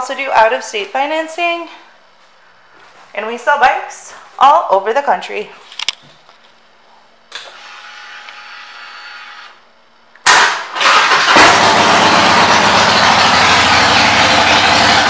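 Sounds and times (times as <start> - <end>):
motorcycle engine starting and idling: 10.2 - 15.0.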